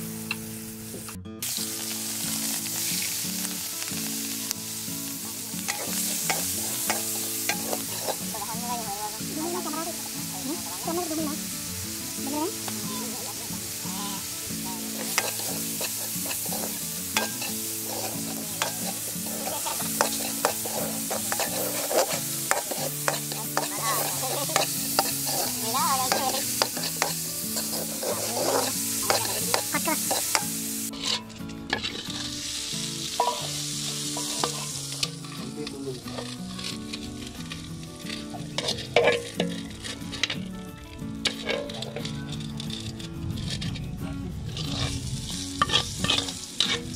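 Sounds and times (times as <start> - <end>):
shrimp sizzling in a wok: 0.0 - 46.9
spatula scraping a metal pan: 5.6 - 8.8, 12.6 - 40.5, 41.2 - 43.8, 44.6 - 46.9.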